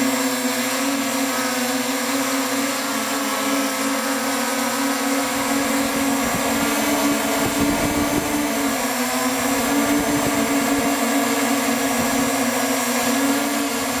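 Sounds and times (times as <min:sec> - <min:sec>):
drone motors humming: 0:00.0 - 0:14.0
wind rumbling on microphone: 0:05.4 - 0:11.0.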